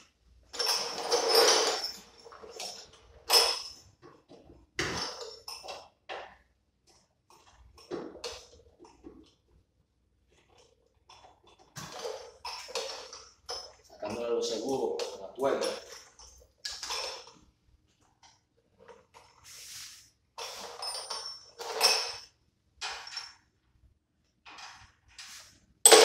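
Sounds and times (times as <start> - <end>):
metal tools clinking: 0.5 - 3.9, 11.2 - 17.3, 20.4 - 23.4.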